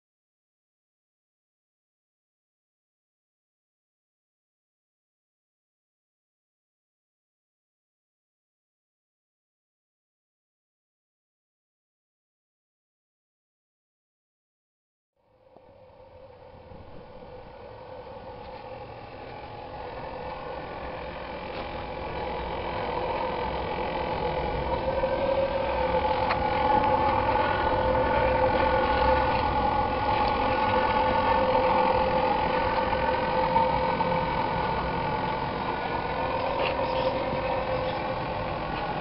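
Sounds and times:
small engine droning whine: 15.2s - 39.0s
wind rumbling on microphone: 15.6s - 39.0s.

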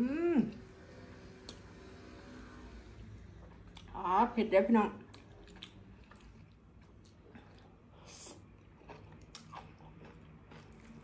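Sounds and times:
person chewing and slurping: 5.1s - 11.0s.

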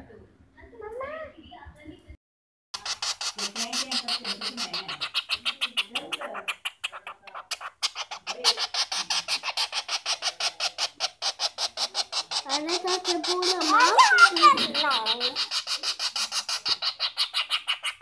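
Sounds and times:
young woodpecker chirping: 2.8s - 18.0s.

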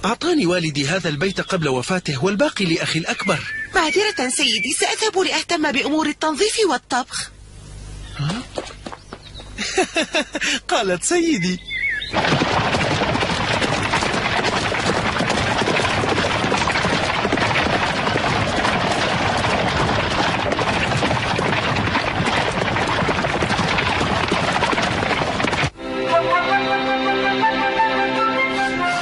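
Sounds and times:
rattling rushing noise: 12.1s - 25.8s.

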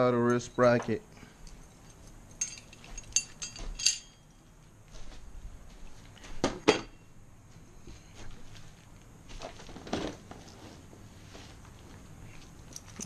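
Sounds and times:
metal parts clinking: 1.4s - 4.3s, 12.7s - 13.0s.

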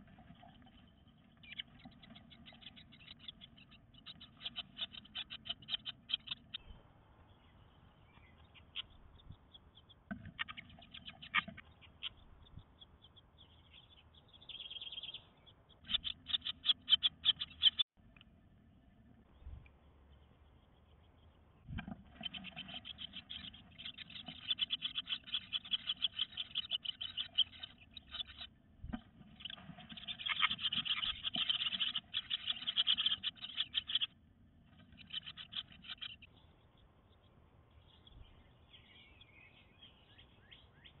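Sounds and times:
faint birdsong: 0.0s - 41.0s
nestlings begging calls: 0.1s - 6.6s, 8.2s - 17.8s, 22.0s - 28.5s, 29.2s - 36.3s.

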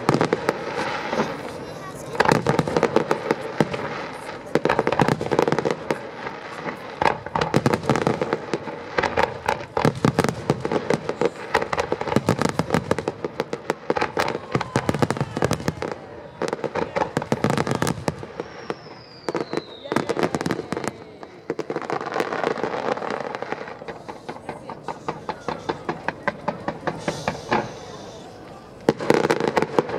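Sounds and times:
firework bangs: 0.0s - 29.9s
firework crackling: 0.0s - 29.9s
falling whistle: 18.4s - 20.2s.

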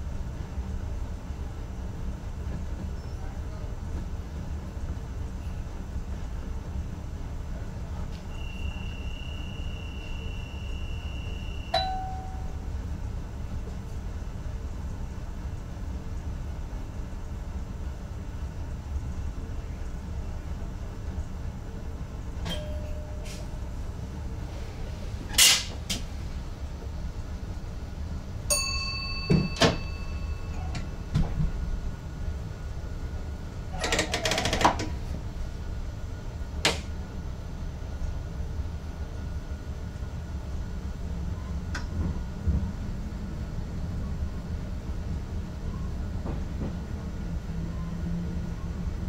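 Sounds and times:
train running noise: 0.0s - 49.0s
short ringing tone: 11.6s - 12.6s, 28.5s - 31.1s.

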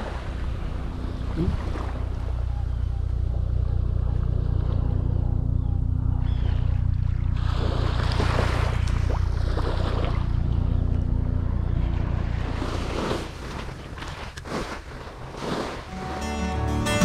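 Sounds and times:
surf washing on beach: 0.0s - 2.2s, 12.1s - 16.6s.

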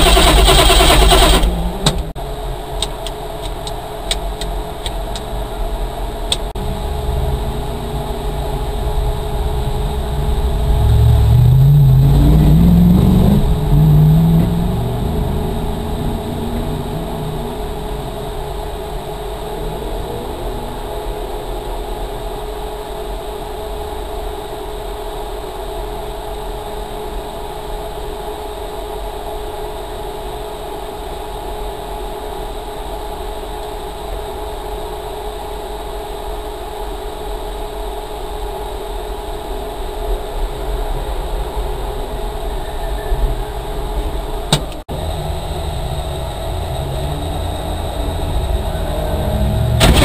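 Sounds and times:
car engine running: 0.0s - 25.1s, 43.2s - 50.0s.

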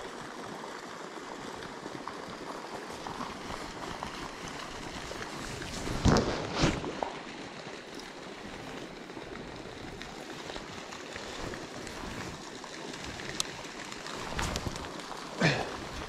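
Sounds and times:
faint ticks: 13.2s - 15.0s.

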